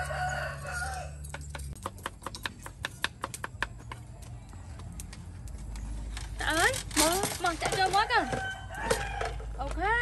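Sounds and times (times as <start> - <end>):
rooster crowing: 0.0 - 1.2, 8.1 - 9.5
knife chopping on wooden board: 1.3 - 4.0.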